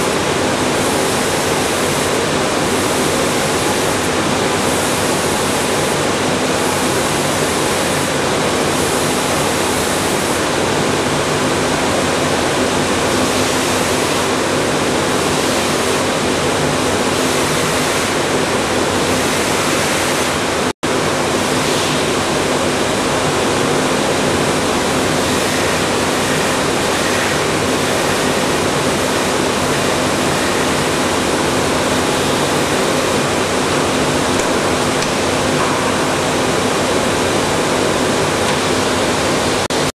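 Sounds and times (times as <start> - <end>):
sanding machine rushing noise: 0.0 - 11.7, 24.4 - 34.4.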